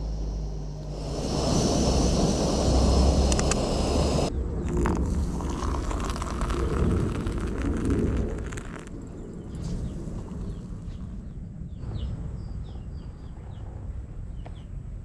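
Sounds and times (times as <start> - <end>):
wind on microphone: 0.0 - 14.4
water pouring into metal cup: 3.2 - 9.1.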